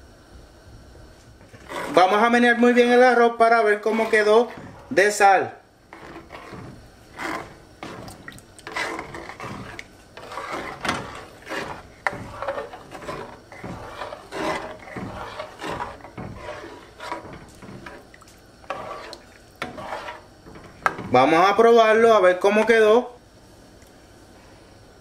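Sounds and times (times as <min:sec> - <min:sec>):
spoon scraping pot bottom: 0:01.4 - 0:02.2, 0:03.5 - 0:05.0, 0:05.9 - 0:21.2.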